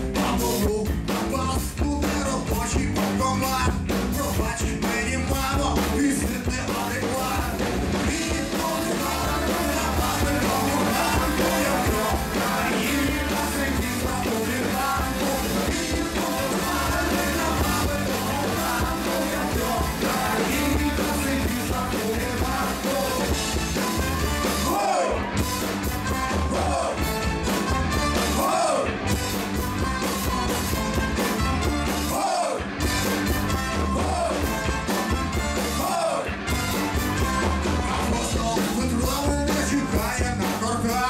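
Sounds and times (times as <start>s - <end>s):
bass line: 0.0s - 41.0s
electric guitar: 0.0s - 41.0s
man singing into a microphone: 0.1s - 23.4s, 37.8s - 41.0s.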